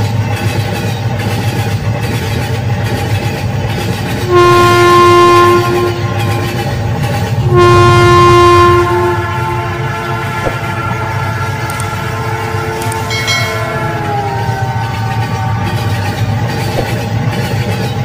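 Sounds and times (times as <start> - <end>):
electronic train whistle: 4.2 - 17.0.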